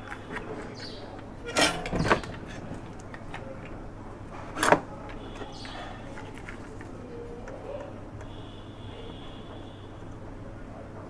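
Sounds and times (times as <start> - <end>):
scraping handling sounds: 0.0 - 7.6
faint steady hum: 0.0 - 11.0.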